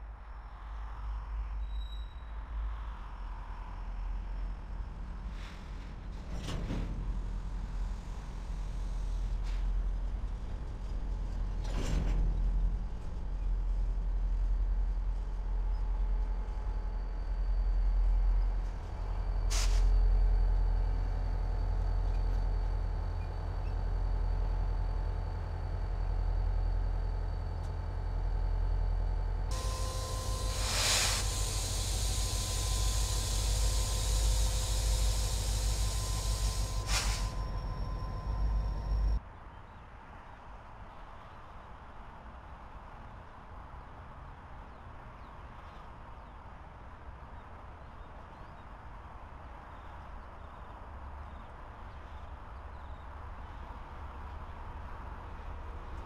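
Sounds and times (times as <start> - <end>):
freight train rumbling past: 3.8 - 39.2
brief hiss: 19.5 - 20.0, 29.5 - 39.2.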